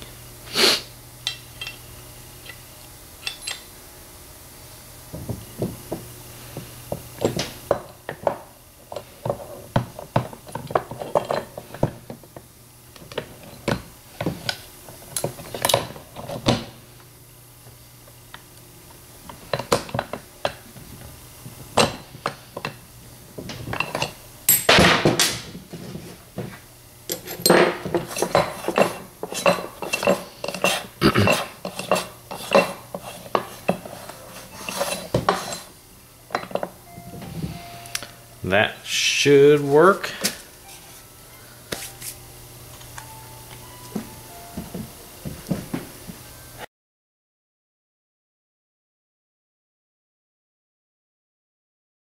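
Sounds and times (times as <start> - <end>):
metal gears clinking: 3.2 - 3.7.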